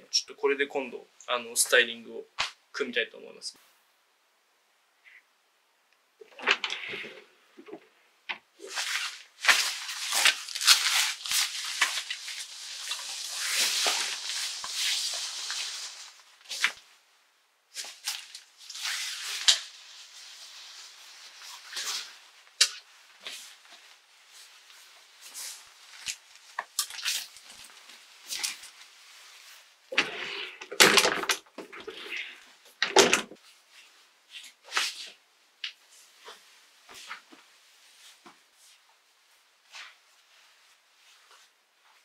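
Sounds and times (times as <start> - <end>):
clothes rustling: 6.2 - 42.0
hangers knocking together: 30.6 - 31.8.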